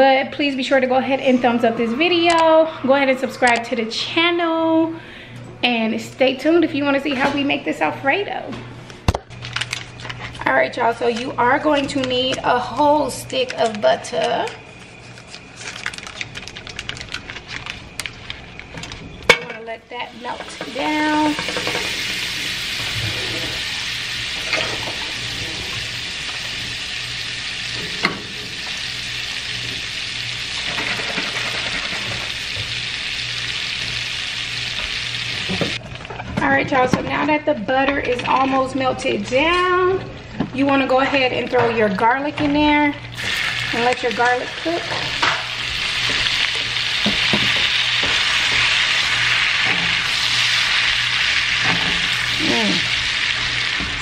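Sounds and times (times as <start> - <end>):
butter sizzling in skillet: 20.1 - 35.8, 43.2 - 54.0.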